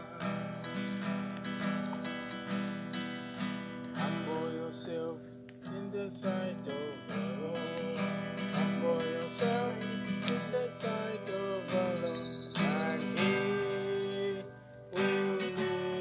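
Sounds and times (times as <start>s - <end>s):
acoustic guitar strumming: 0.0s - 16.0s
crickets chirring: 0.0s - 16.0s
person singing: 4.0s - 16.0s.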